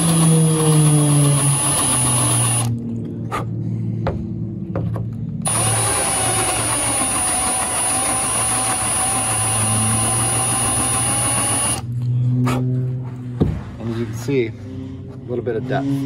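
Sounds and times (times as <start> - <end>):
cordless drill whining: 0.0 - 2.8, 5.4 - 11.9.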